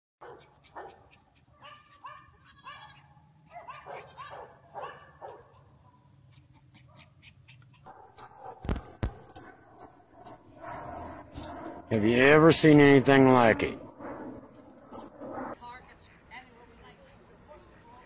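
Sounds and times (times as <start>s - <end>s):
dog yipping: 0.2s - 9.4s.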